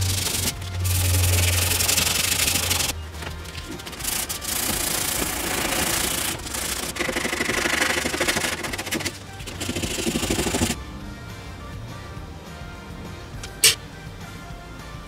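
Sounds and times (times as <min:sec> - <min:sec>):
sanding sponge scratching wood: 0:00.0 - 0:02.9, 0:03.8 - 0:10.8.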